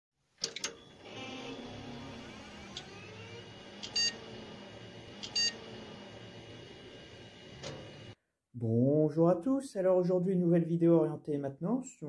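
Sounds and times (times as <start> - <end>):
computer fan and drive whirring: 0.5 - 8.2
faint rising whine: 0.9 - 8.2
clicks: 2.6 - 3.1, 7.5 - 8.2
short electronic beeps: 3.9 - 4.2, 5.2 - 5.6.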